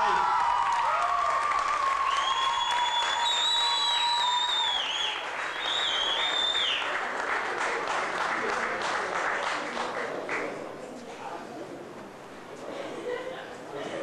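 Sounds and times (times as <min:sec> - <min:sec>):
audience clapping: 0:00.0 - 0:10.6
high whistle: 0:02.0 - 0:06.8.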